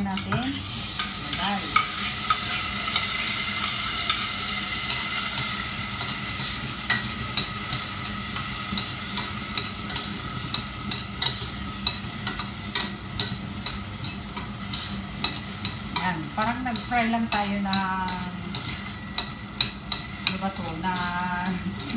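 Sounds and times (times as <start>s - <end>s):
rice sizzling in oil: 0.0s - 21.9s
utensil scraping pan: 0.2s - 7.8s.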